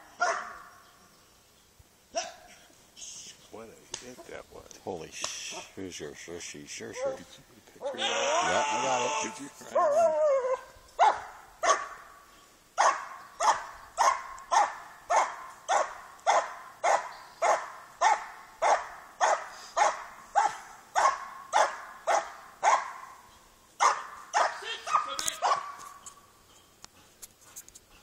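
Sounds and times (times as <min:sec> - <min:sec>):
dog barking: 0:00.2 - 0:00.7, 0:02.2 - 0:02.4, 0:09.7 - 0:12.1, 0:12.8 - 0:23.2, 0:23.8 - 0:26.0.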